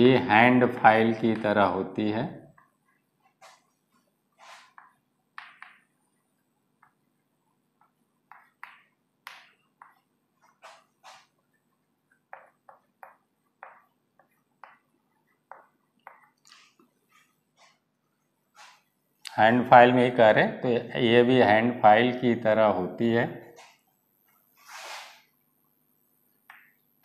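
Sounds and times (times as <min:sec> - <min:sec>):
chalk tapping and scraping: 0:02.5 - 0:06.2, 0:06.8 - 0:17.9, 0:18.6 - 0:18.9, 0:24.5 - 0:25.3.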